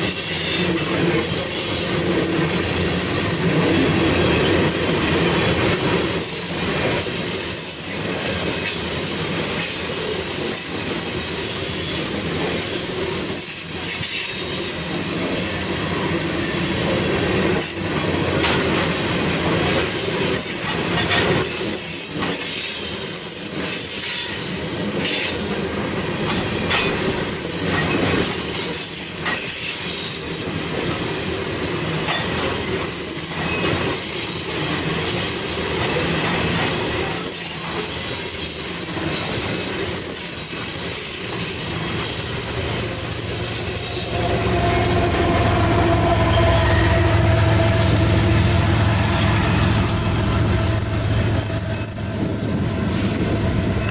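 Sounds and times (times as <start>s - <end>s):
train wheels clattering on rails: 0.0s - 53.9s
high-pitched wheel squeal: 43.0s - 49.9s.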